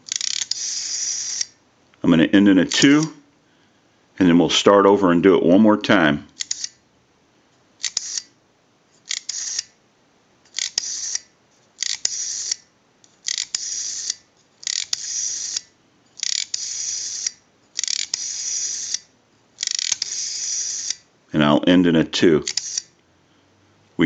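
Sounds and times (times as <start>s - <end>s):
rotary dial whirring back: 0.0s - 1.6s, 6.4s - 6.8s, 7.8s - 8.3s, 9.0s - 9.8s, 10.5s - 21.0s, 22.4s - 22.9s.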